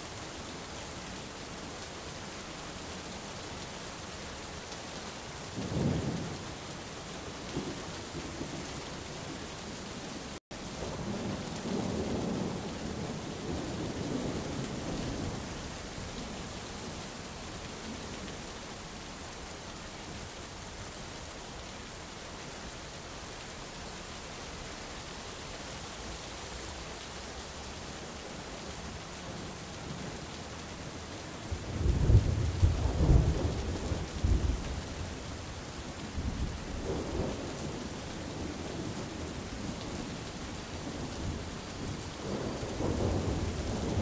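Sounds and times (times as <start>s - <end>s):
rain falling on leaves: 0.0s - 44.0s
thunder rumbling: 31.5s - 35.0s, 40.8s - 44.0s.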